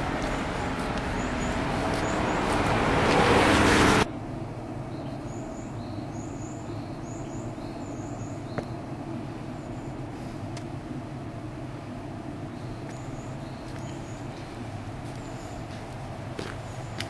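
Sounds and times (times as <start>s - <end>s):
birds chirping: 0.0s - 3.0s, 4.8s - 10.4s, 12.0s - 17.0s
bus engine and tyres: 0.0s - 17.0s
low steady hum: 4.0s - 17.0s.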